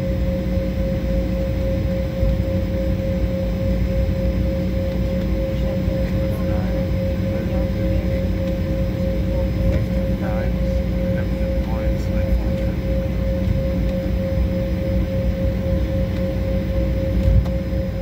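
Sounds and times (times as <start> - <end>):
high-pitched engine hum: 0.0 - 18.0
jet engines low rumble: 0.0 - 18.0.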